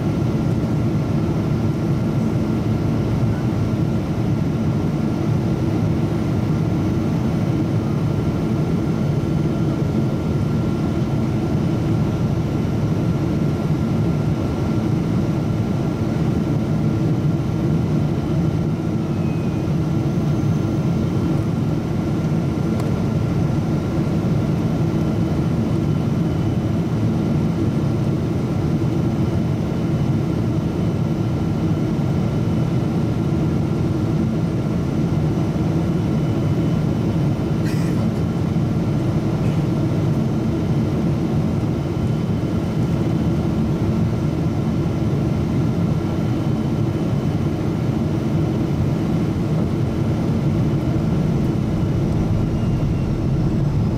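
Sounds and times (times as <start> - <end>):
faint steady whine: 0.0 - 30.0, 34.7 - 53.9
jet engine rumble in cabin: 0.0 - 53.9
rushing airflow: 48.8 - 53.9.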